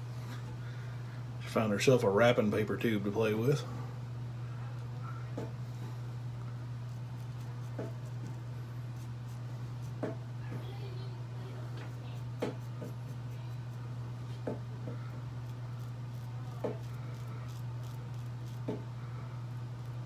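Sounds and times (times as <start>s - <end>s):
razor scraping stubble: 6.7s - 10.2s, 11.6s - 20.0s.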